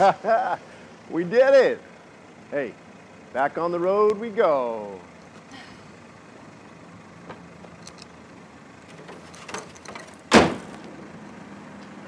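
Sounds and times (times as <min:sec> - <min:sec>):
car hood slamming shut: 0:10.3 - 0:10.8.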